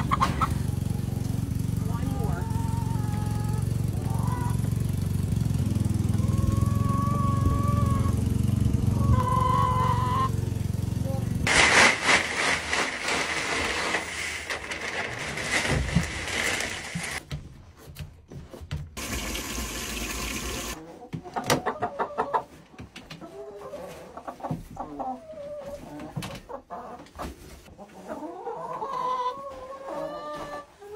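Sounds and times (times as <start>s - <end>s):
hens clucking: 0.0s - 4.8s, 6.0s - 10.4s, 20.7s - 30.9s
wood shavings pouring from bag: 11.4s - 17.2s
clattering: 11.5s - 17.2s.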